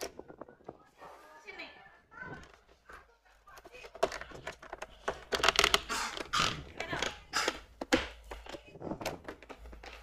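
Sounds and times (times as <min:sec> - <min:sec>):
plastic panels clicking and scraping: 0:03.5 - 0:10.0.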